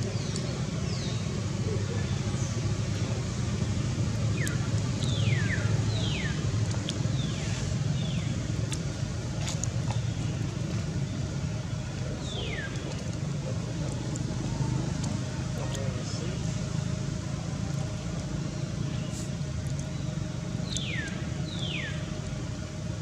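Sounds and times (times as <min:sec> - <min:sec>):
low outdoor rumble: 0:00.0 - 0:23.0
descending whistled bird calls: 0:20.6 - 0:22.1.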